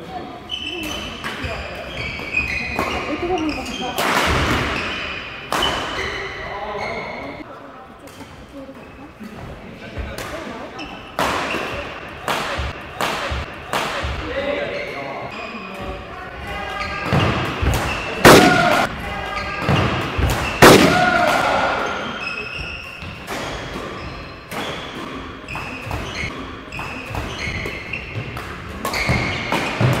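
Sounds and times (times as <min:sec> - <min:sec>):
shoes squeaking on court floor: 0:00.0 - 0:07.5, 0:08.1 - 0:20.8, 0:21.4 - 0:30.0
racket hitting shuttlecock: 0:02.2 - 0:06.2, 0:11.1 - 0:14.2, 0:19.6 - 0:30.0.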